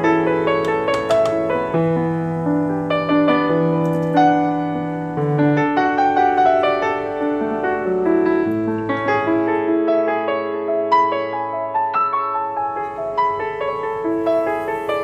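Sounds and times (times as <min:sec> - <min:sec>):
gentle piano music: 0:00.0 - 0:15.0.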